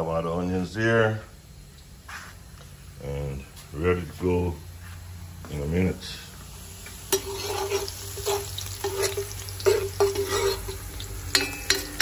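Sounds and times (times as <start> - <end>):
onion sizzling in oil: 4.2 - 12.0
metal spoon knocking pot: 11.3 - 12.0.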